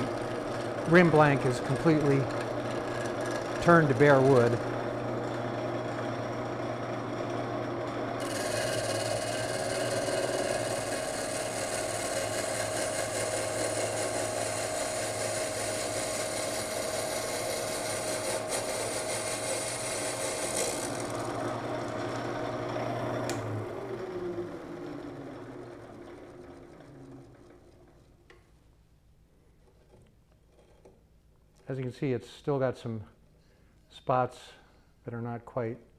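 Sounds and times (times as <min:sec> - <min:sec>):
cutting tool shaving wood: 0:00.0 - 0:27.7
lathe motor hum: 0:00.0 - 0:28.4.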